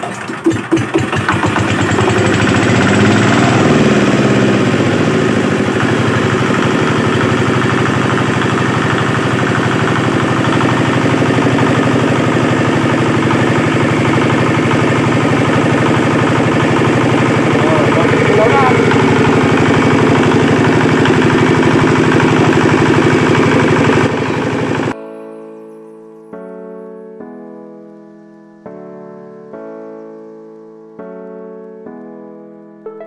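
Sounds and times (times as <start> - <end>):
diesel engine starting and running: 0.0 - 25.0.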